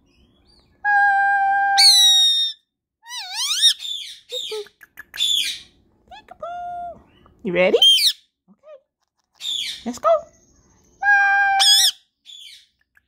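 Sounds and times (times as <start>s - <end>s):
parakeet whistles and squawks: 1.7s - 4.6s, 5.2s - 5.8s, 7.0s - 8.2s, 9.4s - 9.9s, 11.0s - 12.7s.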